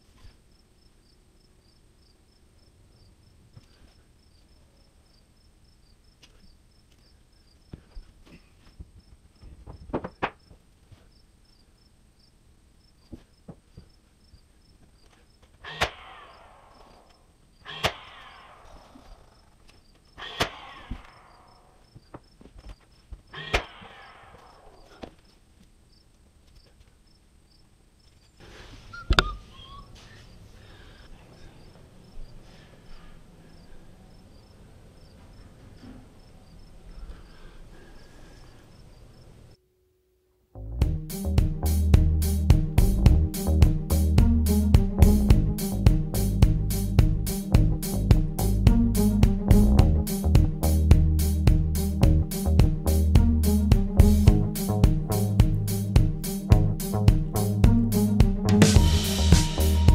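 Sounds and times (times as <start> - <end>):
wooden knocks and bumps: 8.8 - 10.6
nail gun firing: 15.7 - 16.7, 17.8 - 18.7.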